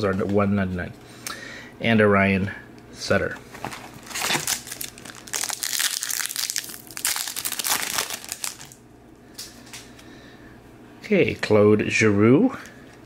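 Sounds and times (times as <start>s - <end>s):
foil wrapper tearing and crinkling: 3.9s - 8.8s.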